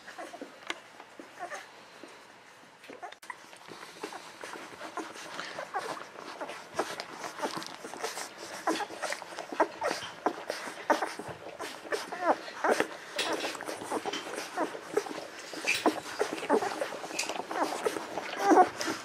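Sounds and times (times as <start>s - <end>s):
puppies squeaking and whimpering: 0.0s - 0.5s, 1.2s - 1.7s, 2.9s - 19.0s.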